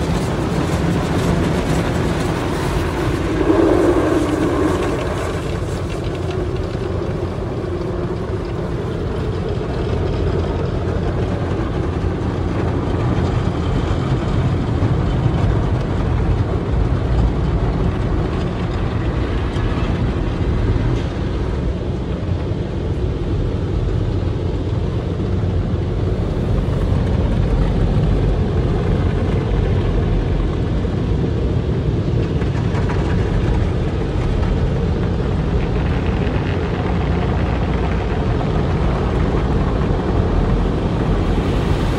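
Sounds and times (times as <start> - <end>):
water jets spraying car: 0.0 - 9.3
deep rumble: 0.0 - 41.9.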